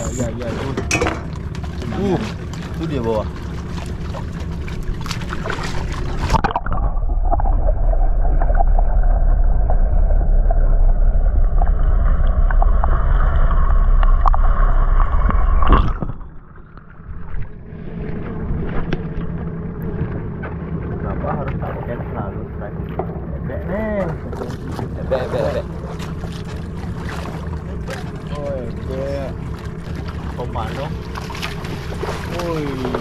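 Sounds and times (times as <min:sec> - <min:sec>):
deep underwater rumble: 0:00.0 - 0:33.0
water sloshing against boat: 0:00.0 - 0:33.0
splash into water: 0:29.9 - 0:33.0.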